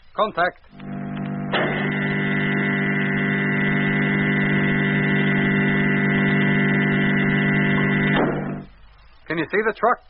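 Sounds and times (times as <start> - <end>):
electric door mechanism hum: 0.7 - 8.7.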